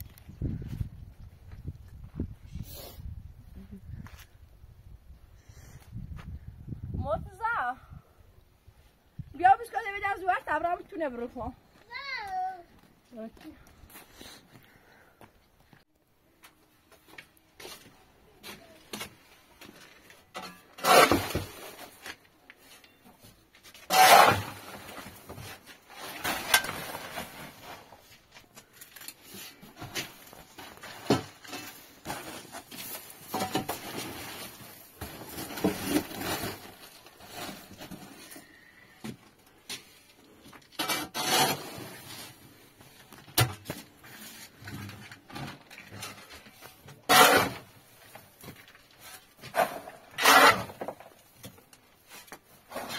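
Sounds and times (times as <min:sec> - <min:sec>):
handling scrapes: 0:19.8 - 0:39.0, 0:39.6 - 0:52.9.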